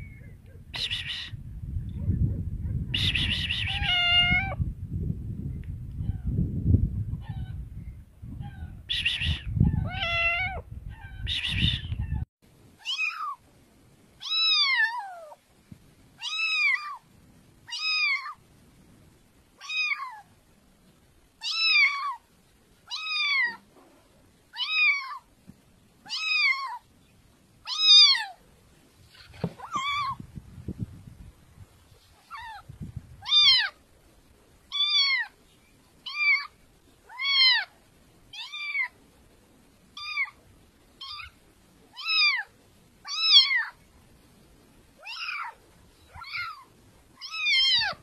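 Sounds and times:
low rumbling outdoor noise: 0.0 - 48.0
kitten meowing: 3.0 - 4.6, 8.5 - 12.2, 12.8 - 13.4, 14.2 - 15.4, 16.2 - 17.0, 17.7 - 18.4, 21.4 - 22.2, 22.9 - 23.6, 26.1 - 26.8, 27.7 - 28.4, 29.6 - 30.2, 32.3 - 33.7, 34.7 - 35.3, 36.0 - 36.5, 37.1 - 37.7, 38.3 - 38.9, 40.0 - 40.4, 41.0 - 41.4, 42.0 - 42.5, 43.1 - 43.8, 45.0 - 48.0.

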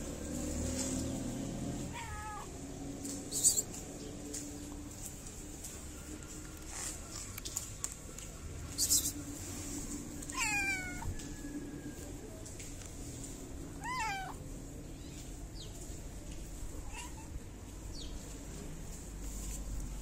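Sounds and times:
cat meowing: 1.9 - 2.5, 10.3 - 11.1, 13.8 - 14.4, 16.8 - 17.4.

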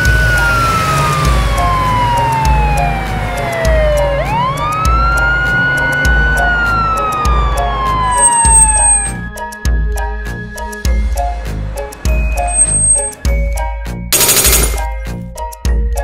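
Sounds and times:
police siren wailing: 0.0 - 9.2.

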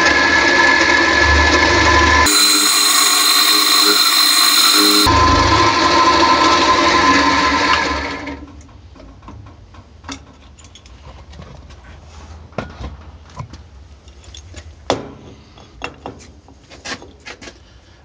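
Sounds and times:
milling machine whining: 0.0 - 8.3.

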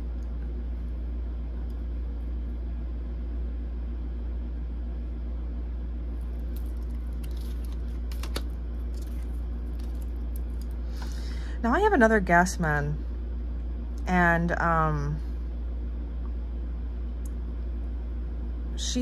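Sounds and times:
steady low hum: 0.0 - 19.0
cards rustling and clicking: 6.4 - 10.8.

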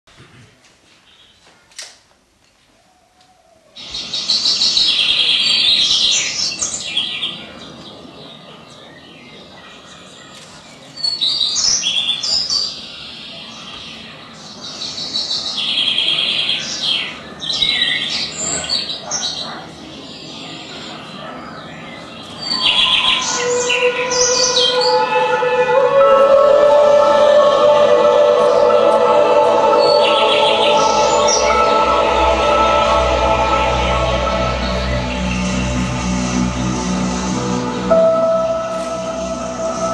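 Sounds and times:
recorded birdsong chirping: 2.6 - 25.8
music with long held notes: 22.5 - 39.9.

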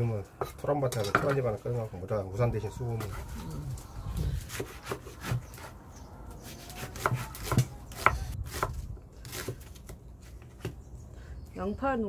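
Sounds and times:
knife chopping on wooden board: 4.5 - 5.7, 6.4 - 9.9.

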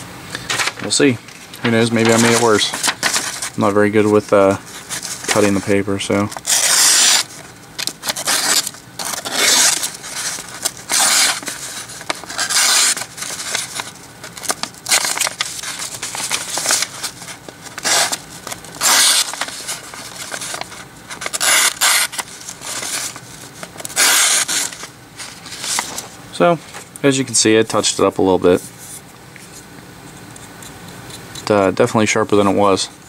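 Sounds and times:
paper crinkling and rustling: 0.4 - 26.9
knife slicing paper: 6.4 - 7.3, 8.0 - 18.2, 18.8 - 23.2, 23.9 - 24.9.

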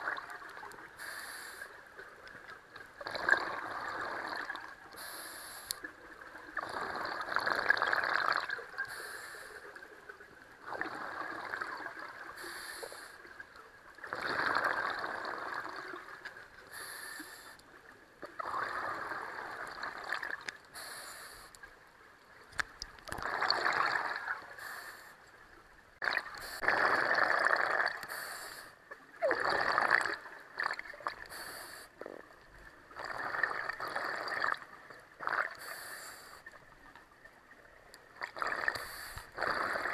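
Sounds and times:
hissing regulator inhale: 1.0 - 1.8, 5.0 - 5.8, 8.8 - 9.6, 12.4 - 13.2, 16.7 - 17.6, 20.7 - 21.6, 24.6 - 25.2, 28.0 - 28.8, 31.3 - 32.0, 35.6 - 36.5, 38.7 - 39.9
gurgling exhaled bubbles: 3.0 - 4.8, 6.4 - 8.8, 10.6 - 12.4, 14.0 - 16.2, 18.3 - 20.5, 23.1 - 24.5, 26.0 - 28.1, 29.2 - 35.7, 38.2 - 39.9.

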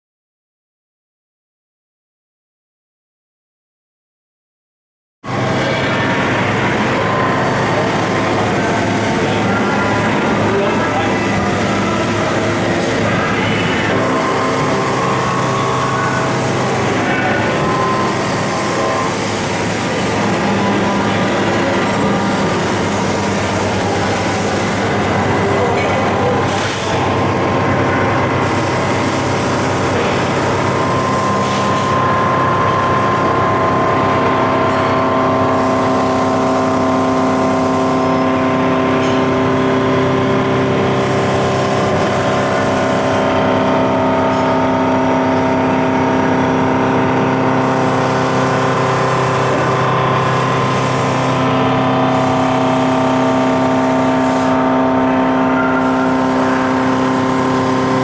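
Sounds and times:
machine whirring with tones: 5.3 - 58.0.

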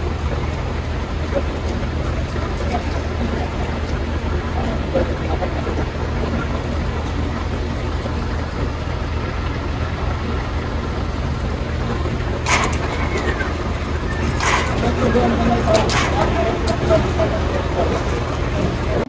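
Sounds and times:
low steady hum: 0.0 - 19.0
short clatter: 12.4 - 17.0.

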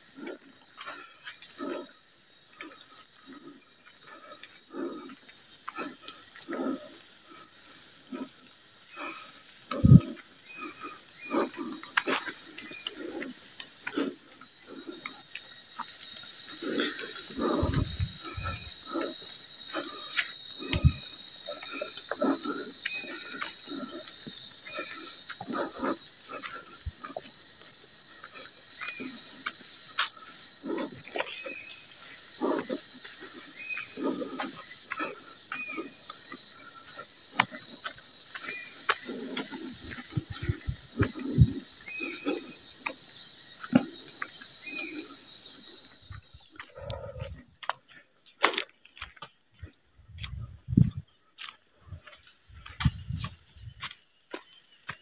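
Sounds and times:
insects droning: 0.0 - 55.0
footsteps on dirt path: 9.7 - 27.5, 29.9 - 41.7, 45.4 - 55.0.

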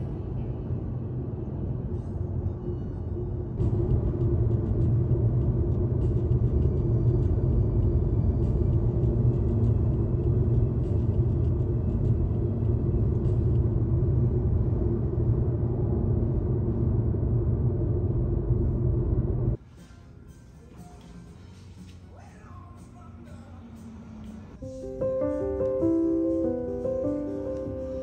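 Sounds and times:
car road rumble inside car: 0.0 - 19.6.

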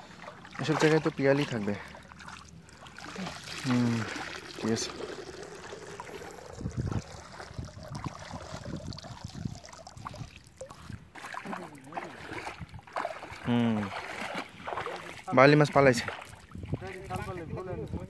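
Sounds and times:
river water splashing around legs: 0.0 - 17.4.

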